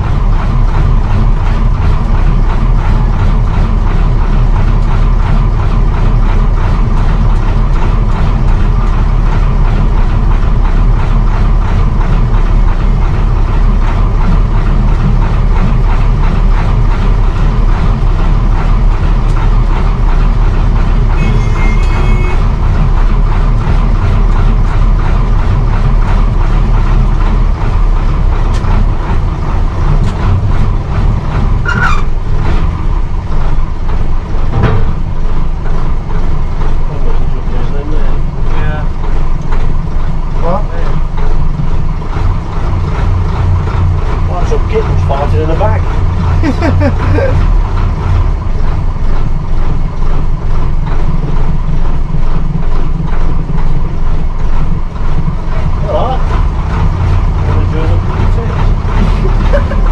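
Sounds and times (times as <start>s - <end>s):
coach diesel engine running: 0.0s - 59.9s
brief squeal: 31.6s - 32.1s.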